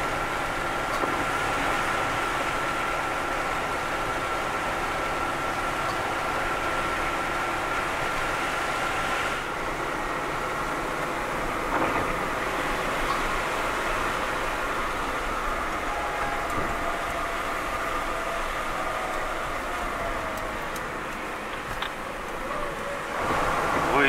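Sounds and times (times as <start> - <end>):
vehicle engine and tyre noise: 0.0 - 24.0.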